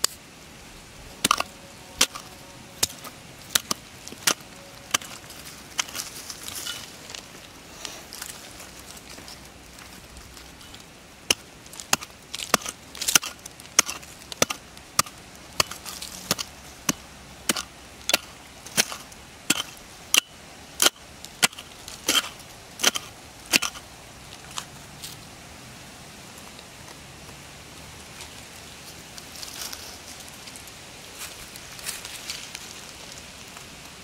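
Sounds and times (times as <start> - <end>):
digging tool chopping into soil: 11.3 - 23.8.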